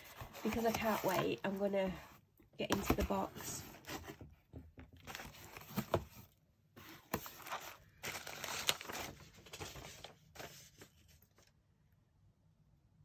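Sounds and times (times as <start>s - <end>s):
paper rustling: 0.0s - 2.0s, 5.0s - 11.5s.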